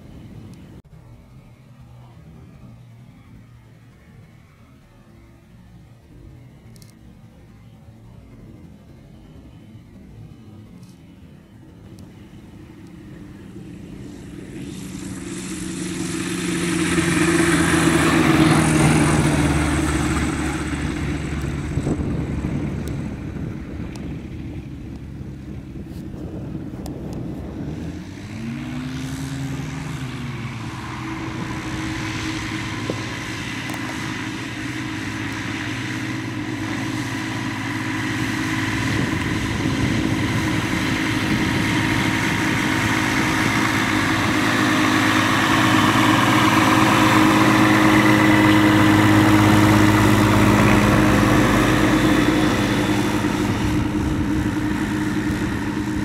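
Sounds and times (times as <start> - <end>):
light aircraft propeller engine: 0.0 - 56.0.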